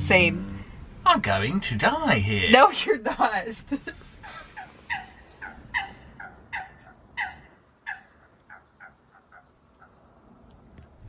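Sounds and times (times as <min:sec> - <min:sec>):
bird calling: 0:04.0 - 0:10.2
faint high chirps: 0:04.2 - 0:10.1.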